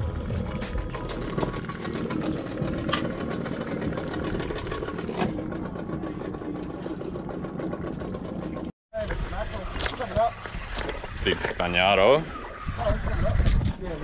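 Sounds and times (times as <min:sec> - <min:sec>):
boat engine idling: 0:00.0 - 0:10.4.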